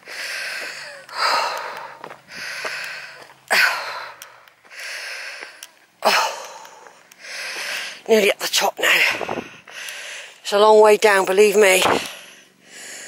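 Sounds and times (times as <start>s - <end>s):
woman's heavy wheezy breathing: 0.0s - 8.1s, 12.1s - 13.0s.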